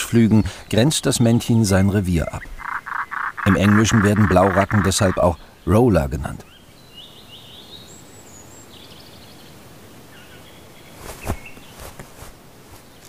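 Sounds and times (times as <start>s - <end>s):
outdoor hiss: 0.0s - 2.6s, 4.4s - 13.0s
high bird chirps: 2.4s - 5.3s
bird wings flapping: 11.0s - 12.8s.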